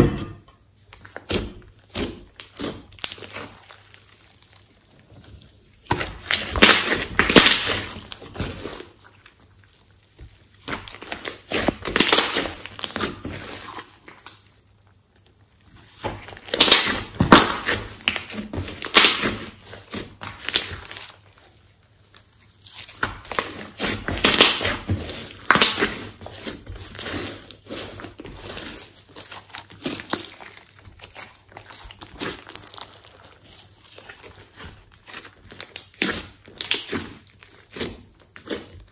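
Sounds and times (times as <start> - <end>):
slime crackling and squishing: 0.0 - 38.9.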